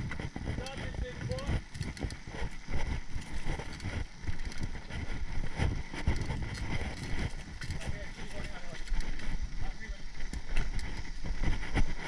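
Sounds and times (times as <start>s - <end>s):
bike rattling and knocking: 0.0s - 12.0s
bike rolling over dirt: 0.0s - 12.0s
wind rumble on microphone: 0.0s - 12.0s.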